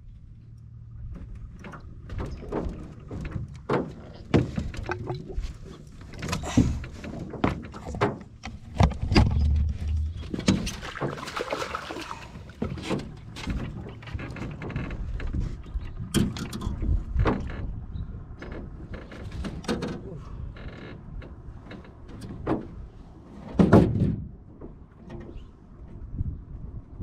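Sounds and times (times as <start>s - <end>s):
knocks in aluminum boat: 23.5s - 25.3s.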